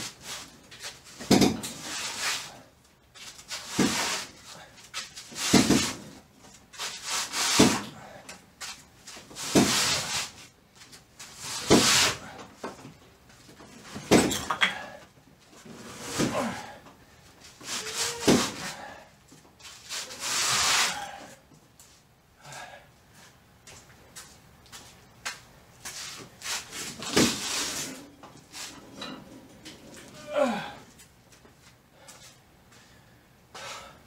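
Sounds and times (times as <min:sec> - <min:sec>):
man grunting and exhaling: 0:16.0 - 0:16.9, 0:17.8 - 0:19.1, 0:30.0 - 0:30.9.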